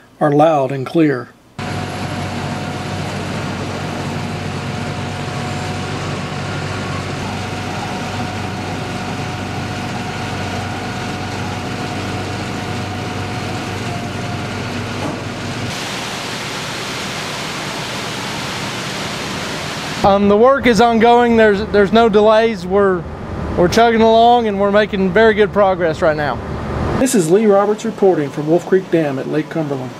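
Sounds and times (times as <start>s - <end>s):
heavy machinery engine drone: 1.6s - 29.9s
rushing hiss: 15.7s - 20.1s.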